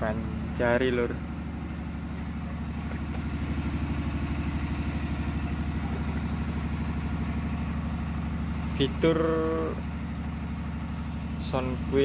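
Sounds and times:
small engine running steadily: 0.0 - 12.0.

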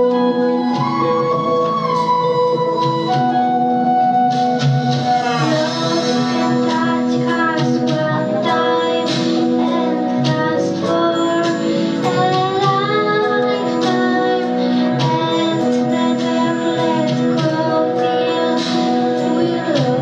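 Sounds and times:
instrumental backing music: 0.0 - 20.0
girl singing into a microphone: 5.1 - 20.0.

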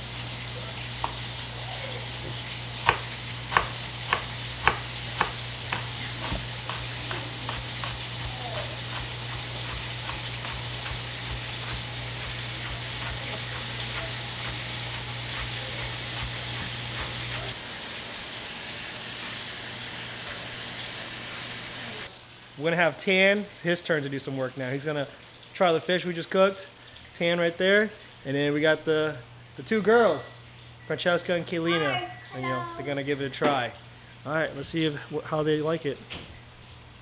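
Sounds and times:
knife chopping on cutting board: 2.2 - 17.6.

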